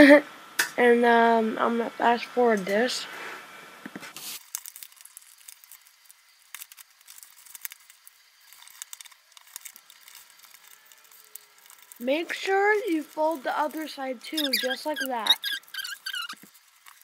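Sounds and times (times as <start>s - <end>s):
paper crinkling and rustling: 4.0s - 17.0s.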